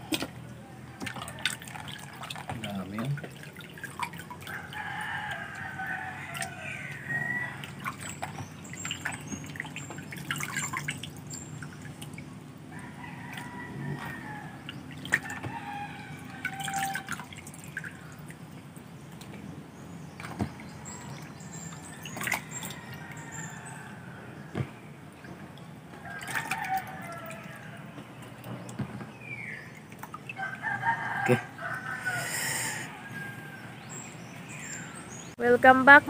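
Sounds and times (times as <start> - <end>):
water dripping and splashing: 0.0 - 23.8, 24.4 - 32.0
rooster crowing: 4.4 - 7.8, 12.7 - 17.3, 26.0 - 28.0, 30.4 - 35.0.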